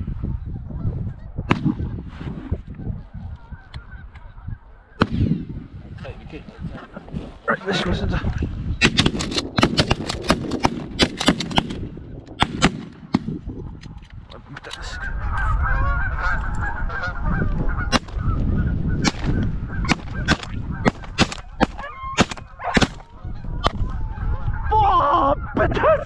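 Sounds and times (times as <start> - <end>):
geese honking: 2.7 - 5.0, 14.7 - 25.7
shotgun shots: 8.8 - 11.8, 12.4 - 13.3, 19.0 - 23.1.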